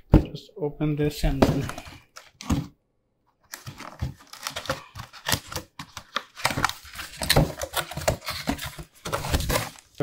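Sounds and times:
packing tape tearing: 0:03.5 - 0:09.9
cardboard box being opened: 0:03.5 - 0:10.0.

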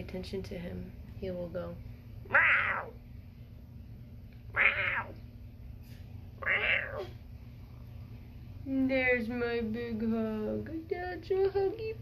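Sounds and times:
cat meowing: 0:02.3 - 0:03.0, 0:04.5 - 0:05.2, 0:06.4 - 0:07.2.

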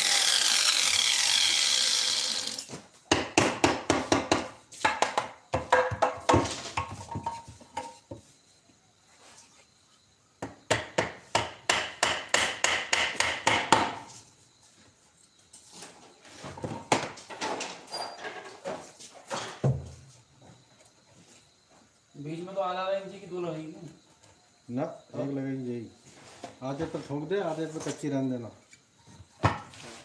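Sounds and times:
hammer tapping on wood: 0:10.4 - 0:14.0.

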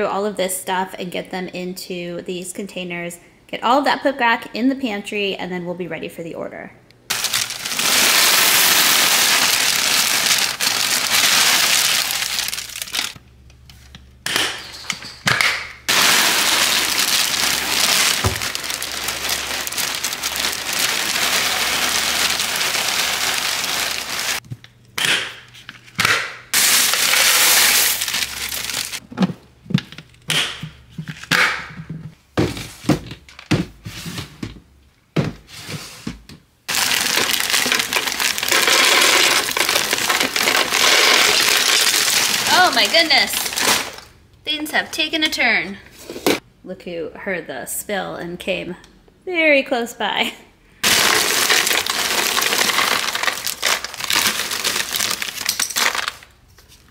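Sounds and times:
cereal pouring into containers: 0:07.1 - 0:13.2, 0:15.9 - 0:24.4, 0:26.6 - 0:29.0, 0:36.7 - 0:44.1, 0:50.8 - 0:56.3
containers and lids clicking: 0:36.7 - 0:44.0.

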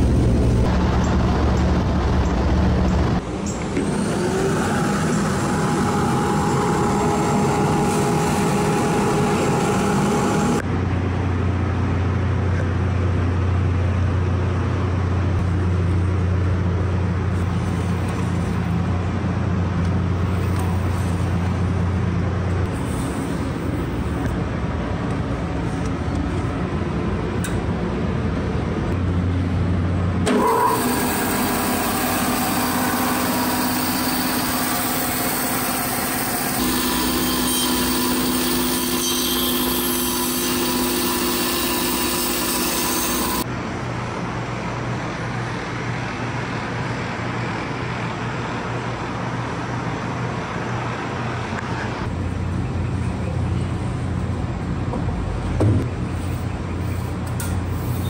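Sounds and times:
bandsaw motor humming: 0:00.0 - 0:10.6, 0:30.2 - 0:43.4
low drone: 0:00.0 - 0:12.5.

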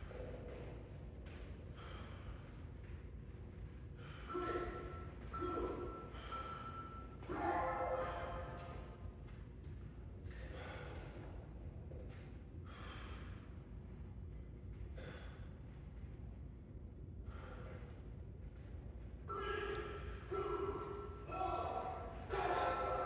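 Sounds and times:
man breathing hard: 0:01.7 - 0:02.9, 0:10.3 - 0:11.5, 0:12.6 - 0:13.6, 0:14.8 - 0:16.0, 0:17.2 - 0:18.1.

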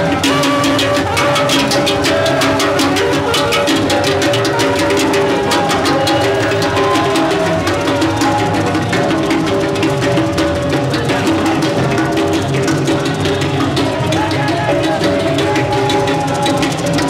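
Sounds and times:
percussion-driven music: 0:00.0 - 0:17.0.

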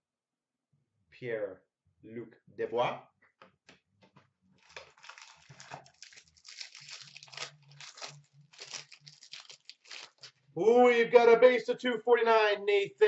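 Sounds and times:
wrapper crinkling and tearing: 0:04.6 - 0:10.4.

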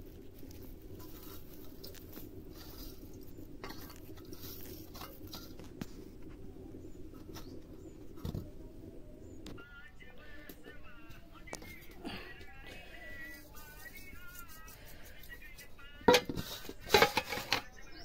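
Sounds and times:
herbs snapping and rustling: 0:00.0 - 0:06.0
steady low hum: 0:00.0 - 0:18.0.

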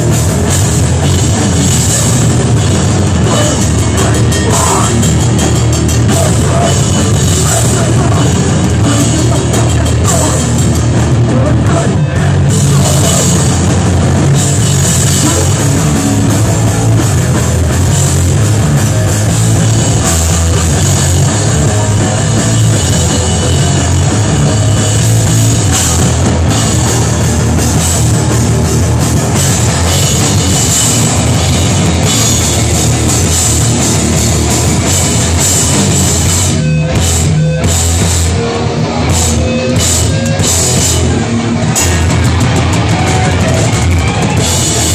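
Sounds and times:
bass guitar: 0:00.0 - 0:44.9
distorted guitar: 0:00.0 - 0:44.9
drum kit hammering: 0:00.0 - 0:44.9.

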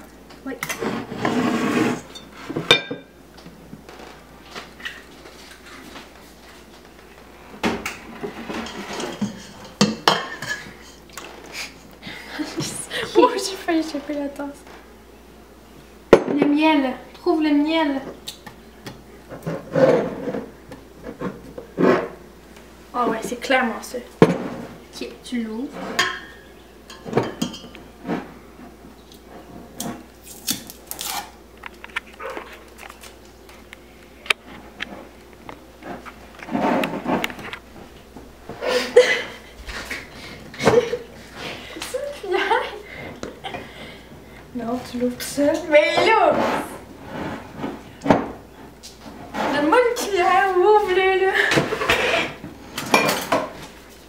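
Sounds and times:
kitchenware knocks and clinks: 0:02.2 - 0:03.1, 0:52.8 - 0:53.6.

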